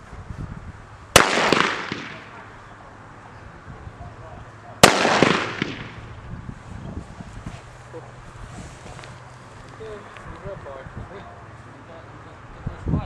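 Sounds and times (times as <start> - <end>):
pistol shots with echo: 1.2 - 2.4, 4.8 - 6.0.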